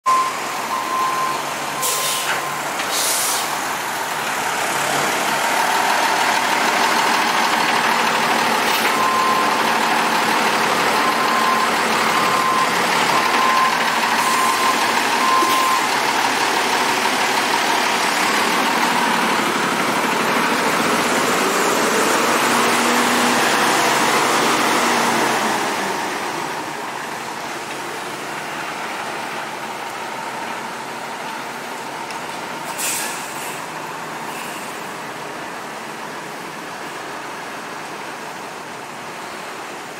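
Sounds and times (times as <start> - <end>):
high beeps: 0.1 - 2.6, 11.0 - 15.9
large motor vehicle rushing noise: 0.1 - 37.8.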